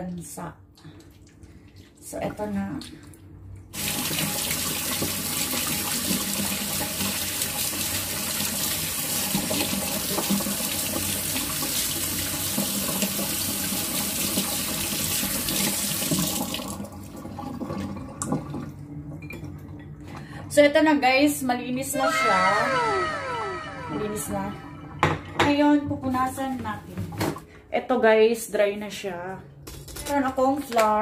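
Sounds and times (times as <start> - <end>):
tap water splashing in sink: 3.8 - 19.7.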